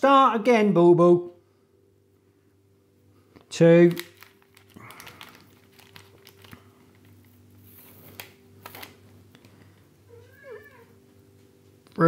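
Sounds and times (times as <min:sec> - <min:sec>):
plastic packet crinkling: 0:03.5 - 0:09.8.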